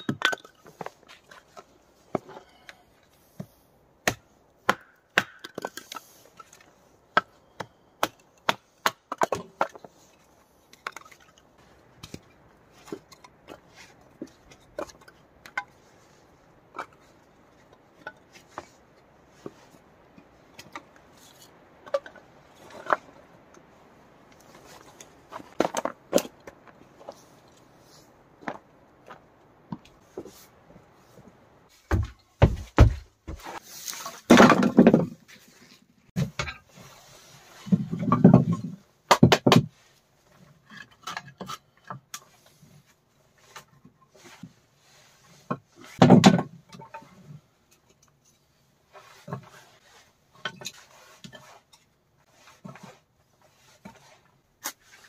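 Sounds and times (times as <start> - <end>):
firewood cracking and chopping: 4.0 - 10.0.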